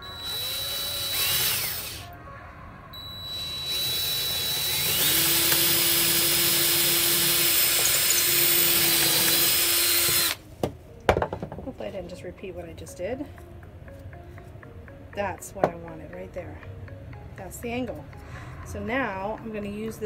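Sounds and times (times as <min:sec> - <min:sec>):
cordless drill boring into wood: 0:00.0 - 0:02.1, 0:03.3 - 0:10.4.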